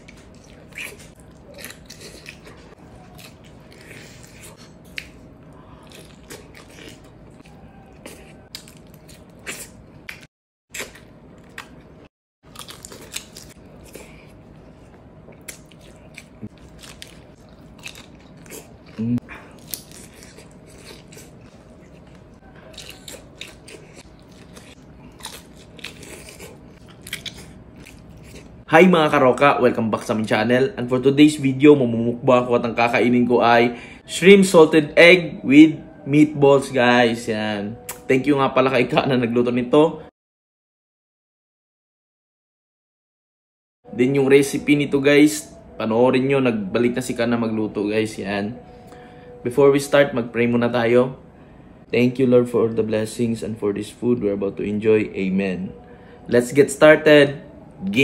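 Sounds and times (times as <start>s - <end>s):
person biting and chewing: 0.0s - 28.6s.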